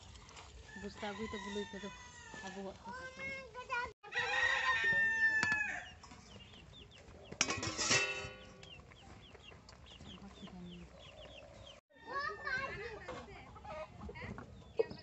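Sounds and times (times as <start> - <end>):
rooster crowing: 0.7 - 2.7, 4.0 - 6.0.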